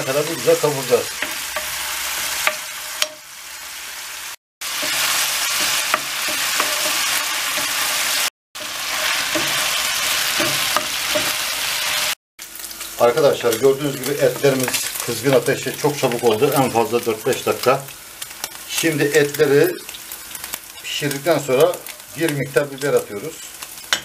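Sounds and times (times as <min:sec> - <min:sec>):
meat sizzling in hot oil: 0:00.0 - 0:24.0
wooden spoon scraping pan: 0:04.8 - 0:07.9.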